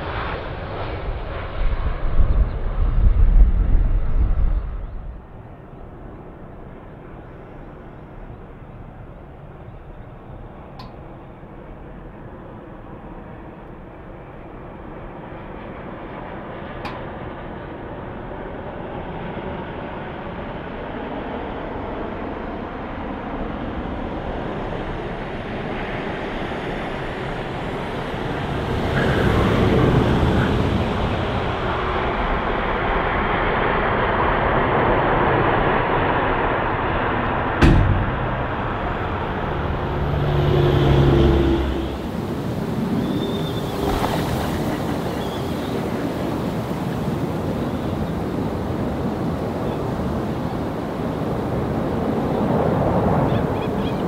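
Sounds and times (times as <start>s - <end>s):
jet airliner engines roaring: 0.0s - 54.0s
sharp knock: 37.6s - 39.4s.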